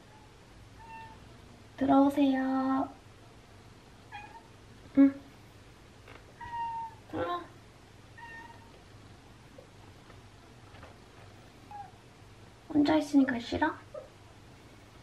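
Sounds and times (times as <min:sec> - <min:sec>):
cat meowing: 0:00.0 - 0:01.2, 0:04.1 - 0:04.5, 0:06.4 - 0:07.2, 0:08.2 - 0:08.7.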